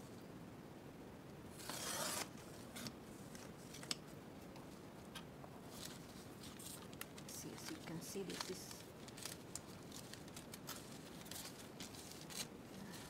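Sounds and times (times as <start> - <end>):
paper rustling: 1.6 - 4.0, 5.6 - 13.0.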